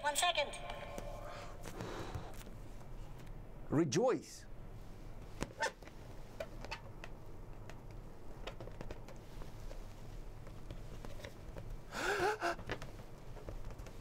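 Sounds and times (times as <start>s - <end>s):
low steady hum: 0.0s - 14.0s
man gasping and crying out: 11.9s - 12.6s.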